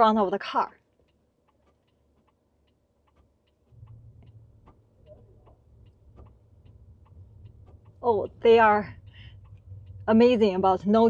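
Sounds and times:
turn signal ticking: 0.9s - 11.0s
low cabin rumble: 3.7s - 11.0s.

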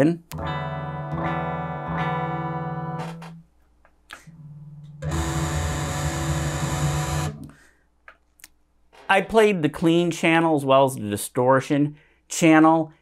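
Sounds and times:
clean electric guitar chord: 0.4s - 3.0s
distorted electric guitar chord: 4.4s - 7.4s.

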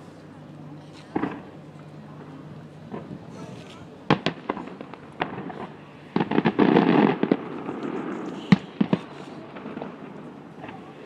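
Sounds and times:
fireworks bangs: 4.1s - 10.9s.

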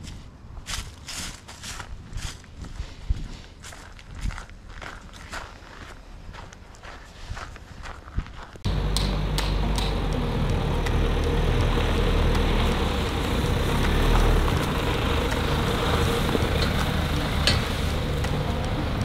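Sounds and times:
car engine and road rumble: 8.6s - 19.0s
sharp clicks: 8.7s - 12.8s.

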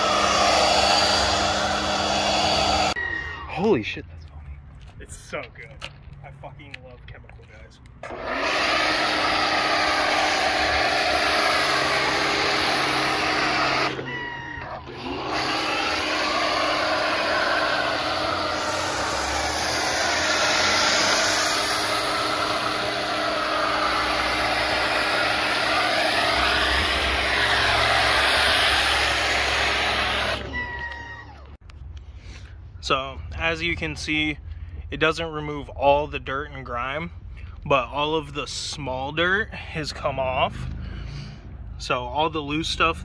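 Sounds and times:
pressure washer water jet hissing: 0.0s - 3.0s, 8.0s - 31.2s
washer pump motor hum: 0.0s - 3.0s, 8.0s - 31.5s.

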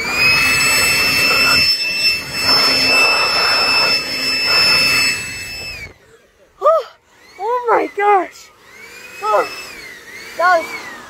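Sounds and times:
air rushing: 0.0s - 6.0s
electric blower motor whine: 0.0s - 11.0s.

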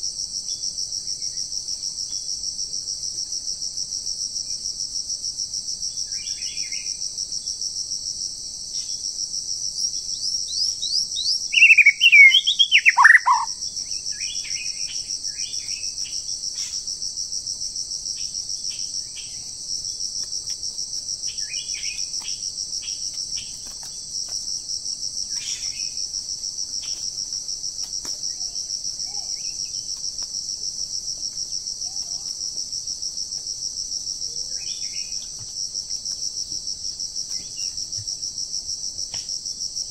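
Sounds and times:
forest insects droning: 0.0s - 39.9s
songbird singing: 9.8s - 16.7s, 21.3s - 23.8s, 34.3s - 35.4s
soft bird chirps: 10.5s - 13.5s.

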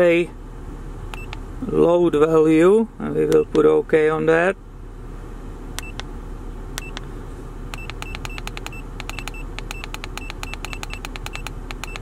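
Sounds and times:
steady low hum: 0.0s - 12.0s
high keypad beeps: 1.2s - 1.4s, 5.8s - 6.0s, 6.8s - 7.0s, 7.7s - 12.0s.

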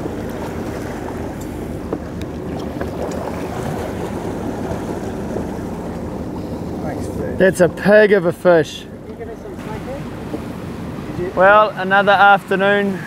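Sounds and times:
boat engine running: 0.0s - 13.0s
water splashing against hull: 0.0s - 13.0s.

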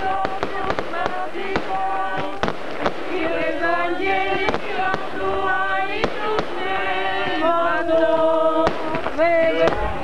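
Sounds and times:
sharp firecracker cracks: 0.0s - 3.3s
group singing chant: 0.0s - 10.0s.

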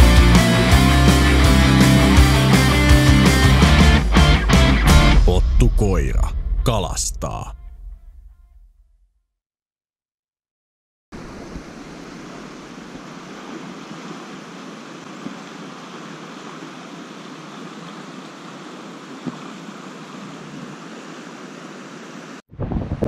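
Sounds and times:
fast-flowing stream rushing: 11.2s - 22.4s.

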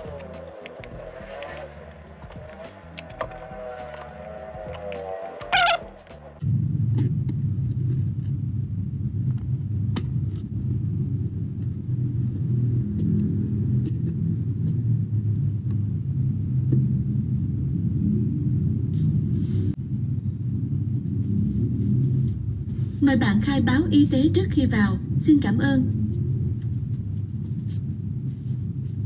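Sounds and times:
low background rumble: 0.0s - 29.0s.

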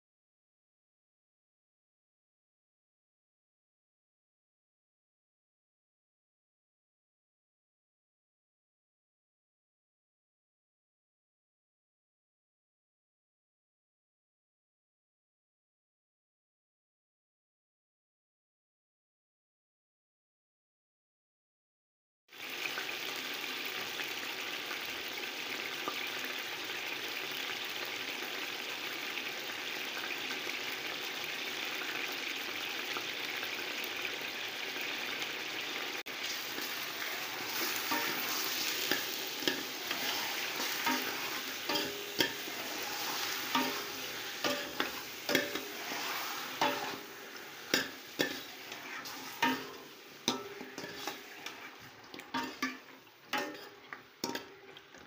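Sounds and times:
chicken wings sizzling in hot oil: 22.3s - 55.0s
spoon knocking and scraping pot: 36.6s - 55.0s.

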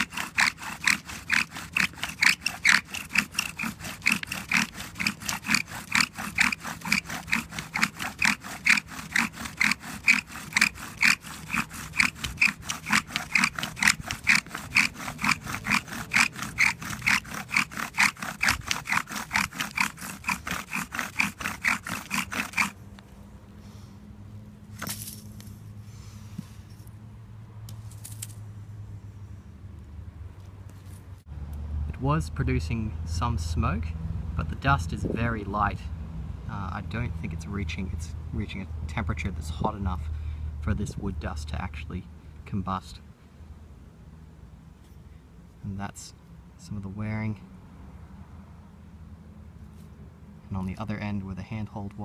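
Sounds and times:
bow drill squeaking scrape: 0.0s - 22.8s.

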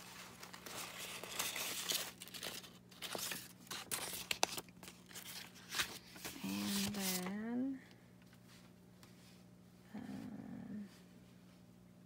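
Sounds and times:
paper rustling and sliding: 0.0s - 7.3s.

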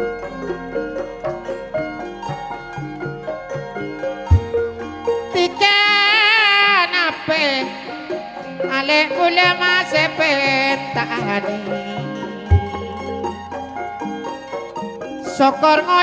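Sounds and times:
drums and low instruments: 4.2s - 5.1s, 12.5s - 13.8s
deep low drum stroke: 4.3s - 4.8s, 12.5s - 13.0s
reedy wind instrument melody: 10.9s - 14.9s.

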